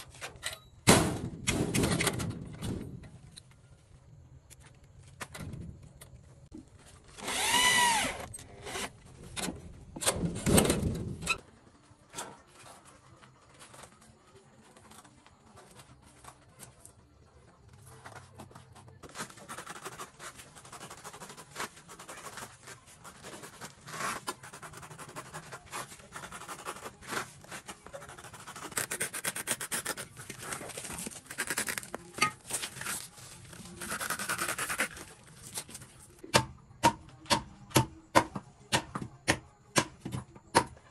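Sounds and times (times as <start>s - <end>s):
cordless drill motor whining: 7.2s - 8.3s.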